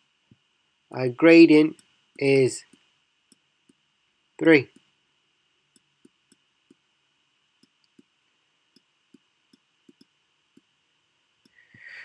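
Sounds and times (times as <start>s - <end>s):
stylus tapping on tablet: 7.6s - 8.1s, 8.7s - 10.7s.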